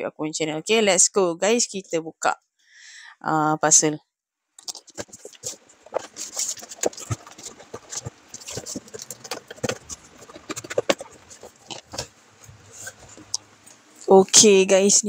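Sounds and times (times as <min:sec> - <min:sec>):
clicks scrapes and taps: 0:04.6 - 0:13.8
parcel wrapping rustling: 0:04.6 - 0:14.1.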